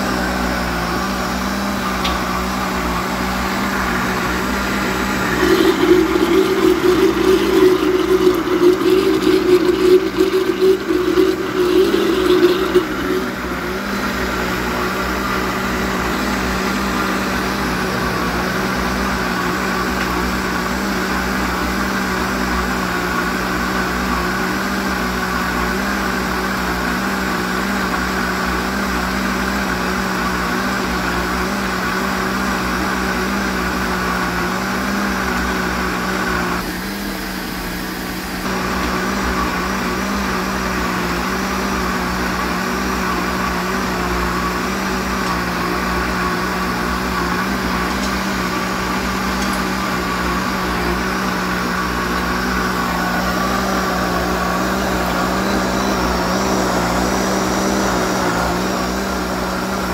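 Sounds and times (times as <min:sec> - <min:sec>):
electric blender running: 0:00.0 - 0:59.9.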